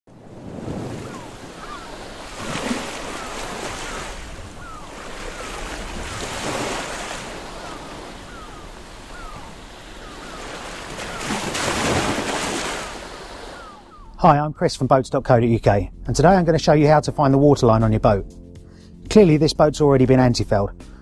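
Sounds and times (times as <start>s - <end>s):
ocean waves washing in: 0.1s - 14.0s
gulls crying: 0.3s - 14.6s.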